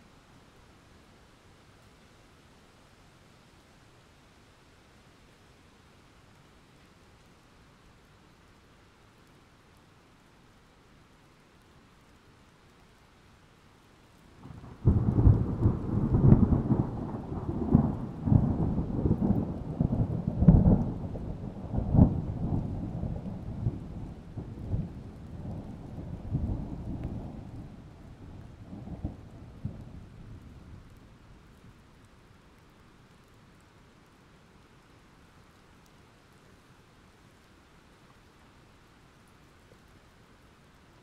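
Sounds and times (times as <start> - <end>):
thunder rumble: 14.4 - 31.2.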